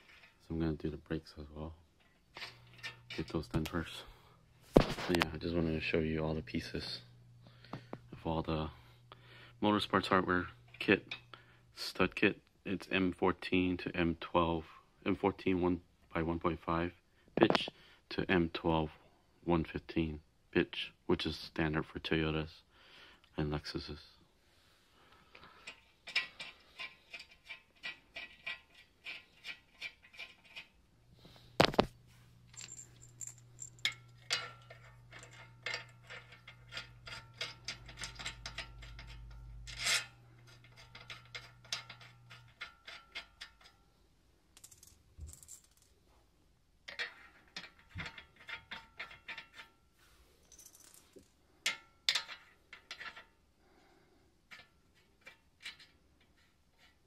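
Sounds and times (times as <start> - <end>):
metallic clicking of lug nuts: 32.6 - 43.8.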